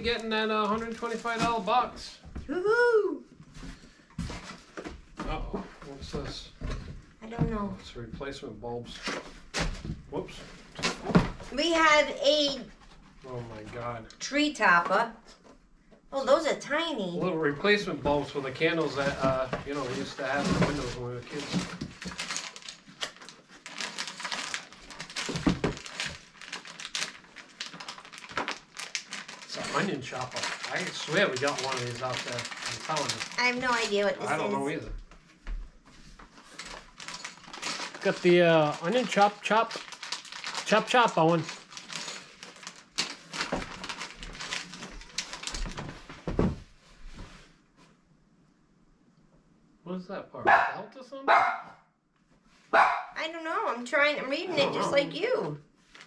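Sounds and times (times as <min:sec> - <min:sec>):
packaging rustling and crinkling: 0:00.6 - 0:02.1, 0:18.6 - 0:34.2, 0:35.9 - 0:47.5.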